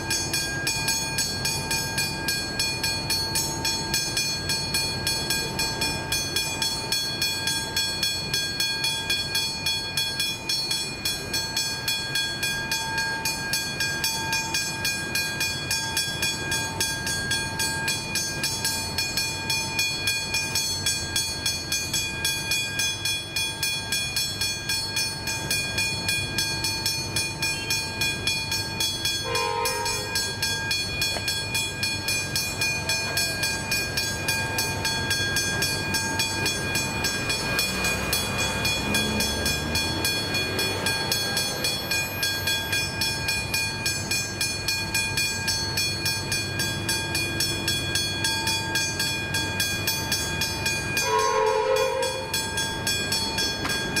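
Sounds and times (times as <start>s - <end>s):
level crossing bells ringing: 0.0s - 54.0s
train horn: 29.2s - 30.3s, 51.0s - 52.4s.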